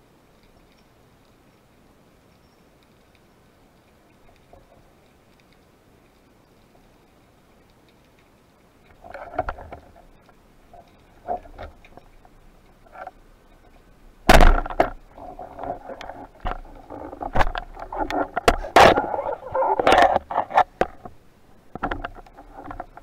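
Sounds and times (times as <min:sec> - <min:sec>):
speargun firing underwater: 0:14.3 - 0:14.9
light clicks and knocks: 0:19.8 - 0:23.0.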